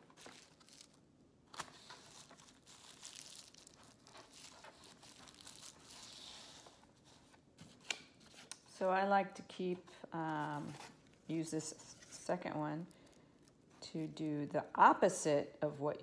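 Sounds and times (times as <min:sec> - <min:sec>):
foil strip rustling and crinkling: 0:00.0 - 0:07.4.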